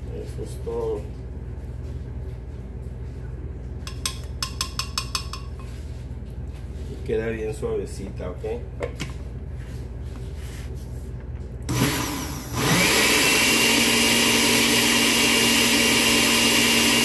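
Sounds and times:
blender running: 11.7s - 17.0s.

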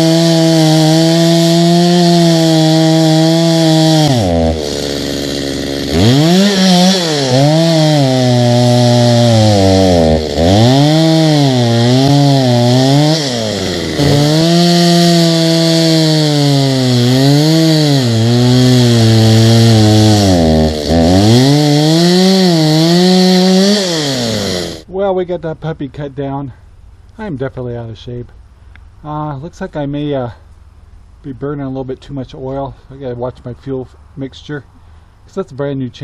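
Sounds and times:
chainsaw cutting tree: 0.0s - 24.9s.

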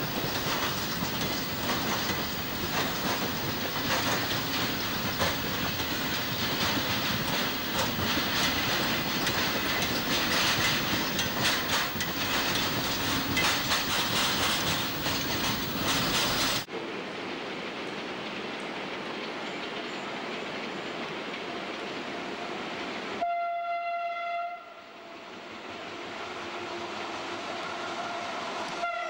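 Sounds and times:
freight train wagons rolling: 0.0s - 16.7s
wheels clicking over rail joints: 0.0s - 16.7s.

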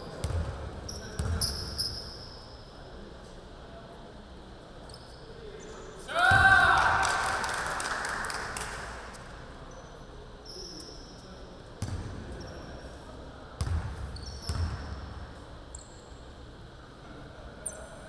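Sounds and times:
sneakers squeaking on court: 0.0s - 2.5s, 13.6s - 16.2s.

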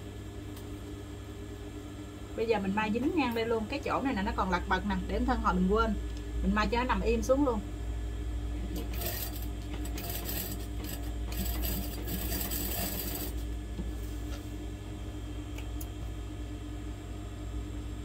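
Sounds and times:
sewing machine running: 8.6s - 13.5s.

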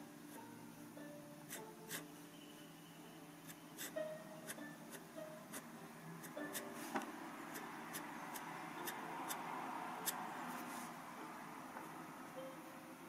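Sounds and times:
pen nib scratching on paper: 1.5s - 2.1s, 3.4s - 4.0s, 7.5s - 9.4s.

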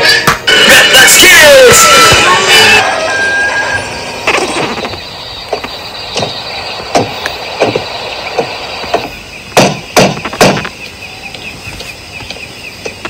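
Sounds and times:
knocks: 4.8s - 10.7s.

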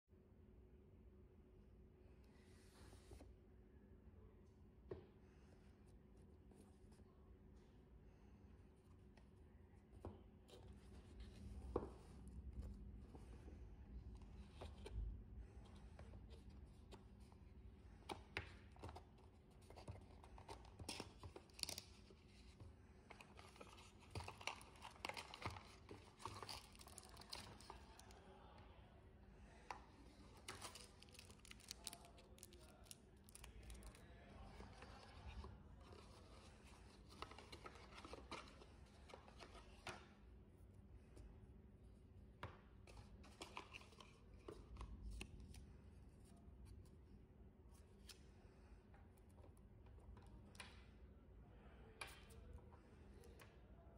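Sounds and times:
plastic wrapping crinkling: 23.6s - 28.1s, 30.4s - 34.0s.

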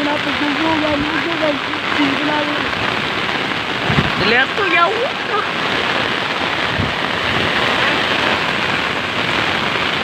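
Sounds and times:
heavy rain on concrete: 0.0s - 10.0s.

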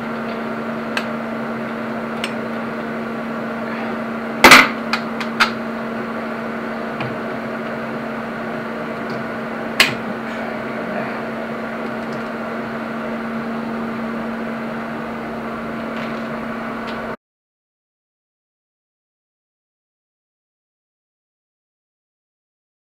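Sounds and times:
electrical machine hum: 0.0s - 17.2s.

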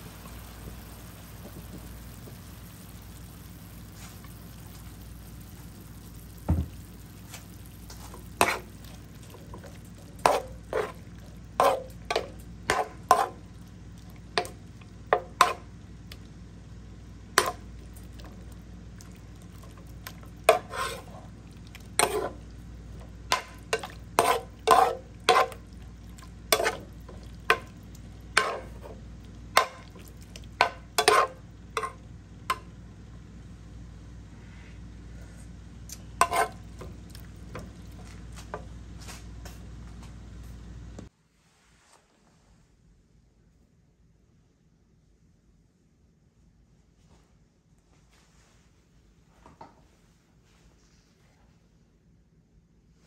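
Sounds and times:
faint sizzle of frying meat: 0.0s - 33.9s
metal ladle scraping a wok: 20.5s - 21.3s, 22.0s - 22.4s, 23.3s - 25.6s, 26.6s - 26.9s, 28.4s - 29.0s, 31.0s - 32.0s, 36.2s - 36.6s.

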